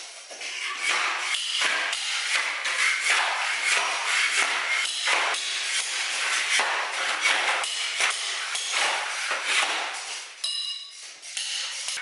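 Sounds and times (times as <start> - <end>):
tool scraping a bare floor: 0.0 - 12.0
metallic clink: 10.4 - 11.0.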